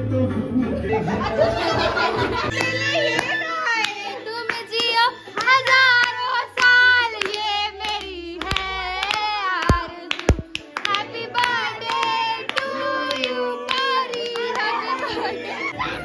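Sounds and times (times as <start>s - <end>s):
background music: 0.0s - 16.0s
girls singing together: 0.7s - 16.0s
hand claps: 2.5s - 15.1s.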